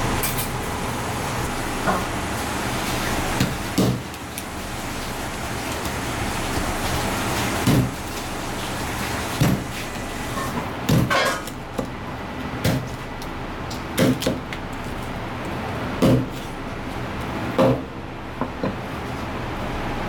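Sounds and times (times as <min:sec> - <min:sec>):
knife chopping on cutting board: 0:03.4 - 0:04.1, 0:07.6 - 0:08.0, 0:14.0 - 0:14.5, 0:16.0 - 0:16.4, 0:17.6 - 0:18.8.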